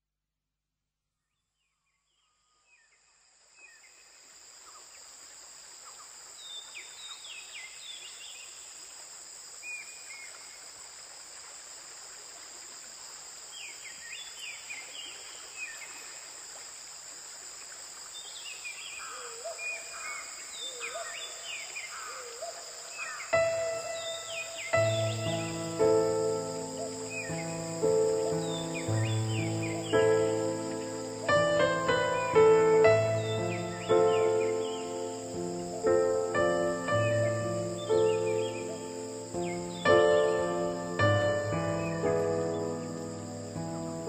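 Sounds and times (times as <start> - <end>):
high insect chirring: 3.8 - 44.0
falling bird calls: 18.1 - 44.0
music: 23.4 - 44.0.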